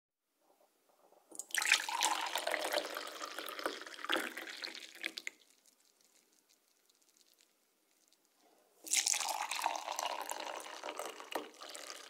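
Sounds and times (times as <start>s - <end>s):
coffee pouring into cup: 1.3s - 7.5s, 8.9s - 12.0s
faint drips: 1.3s - 10.0s.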